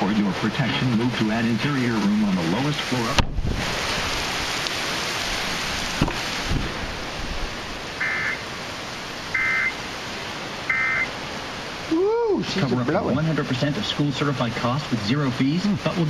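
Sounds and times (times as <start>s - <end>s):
heavy rain on a truck roof: 0.0s - 16.0s
electronic data bursts from radio: 8.0s - 8.4s, 9.3s - 9.8s, 10.7s - 11.1s.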